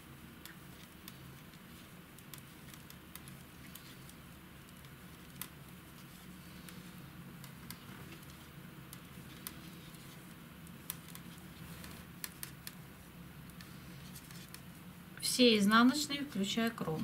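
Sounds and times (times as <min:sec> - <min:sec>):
low steady hum: 0:00.0 - 0:17.0
knitting needles ticking: 0:00.4 - 0:12.8.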